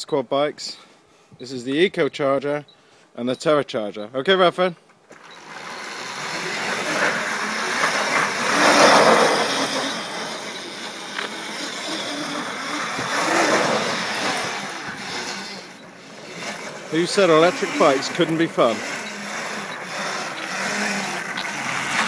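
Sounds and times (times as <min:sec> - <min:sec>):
tyres rushing over rough ground: 0:05.1 - 0:22.0.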